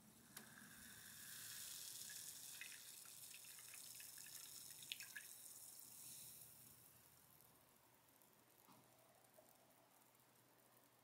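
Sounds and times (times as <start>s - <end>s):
carbonated drink pouring and fizzing: 0.4s - 6.9s.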